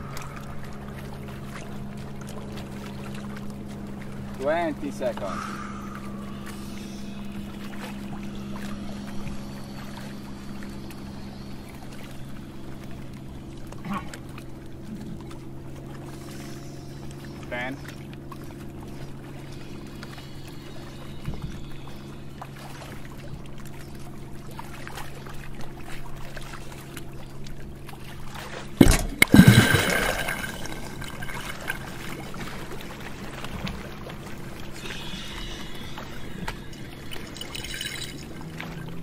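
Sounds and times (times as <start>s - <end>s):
rush of water and bubbles: 0.0s - 9.4s, 24.5s - 39.0s
water sloshing: 0.0s - 20.2s, 20.9s - 39.0s
steady low hum: 0.0s - 39.0s.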